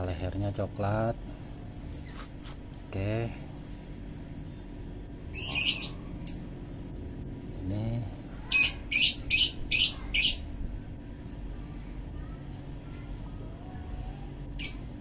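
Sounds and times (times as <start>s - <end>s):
small bird chirping: 0.3s - 3.1s, 4.0s - 7.8s, 8.4s - 10.5s, 11.2s - 13.5s, 14.5s - 15.0s.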